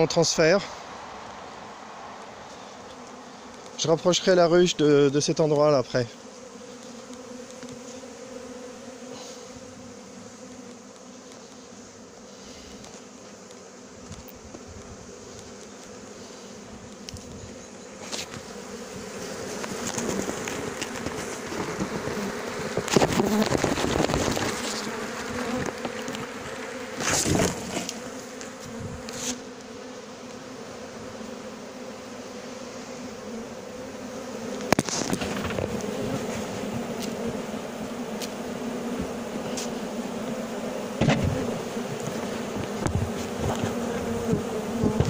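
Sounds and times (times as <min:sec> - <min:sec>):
honeybees buzzing: 0:00.0 - 0:45.0
rustling and knocks of box: 0:19.6 - 0:26.3, 0:27.0 - 0:28.0, 0:34.6 - 0:36.8, 0:41.0 - 0:45.0.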